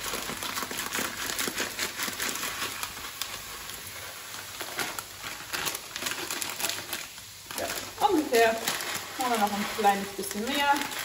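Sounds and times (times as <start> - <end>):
grains pouring into a pan: 0.0 - 11.0.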